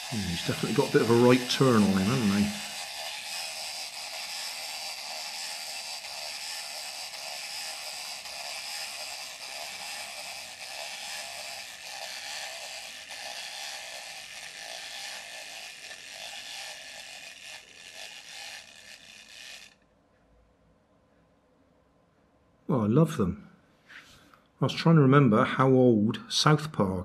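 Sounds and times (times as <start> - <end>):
wind-up toy motor whirring and clicking: 0.0 - 19.8.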